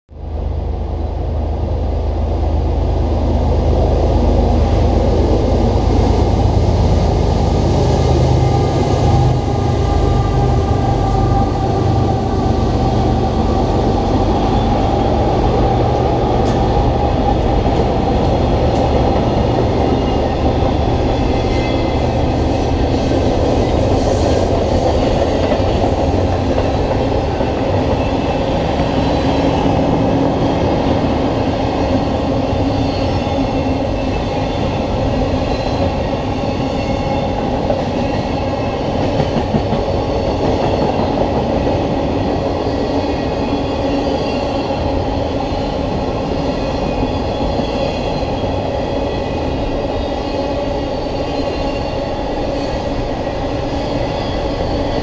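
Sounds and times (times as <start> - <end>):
diesel locomotive engine drone: 0.1 - 55.0
train wheels on rails: 4.0 - 55.0
clicks of rolling freight cars: 15.3 - 22.2.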